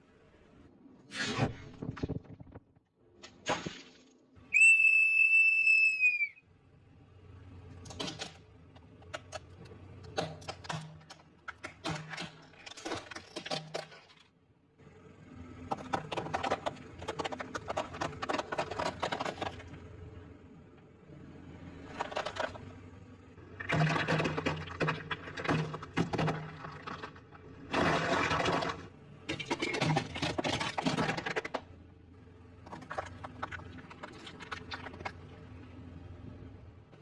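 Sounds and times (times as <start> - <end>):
low engine hum: 6.3 - 13.0, 14.4 - 37.0.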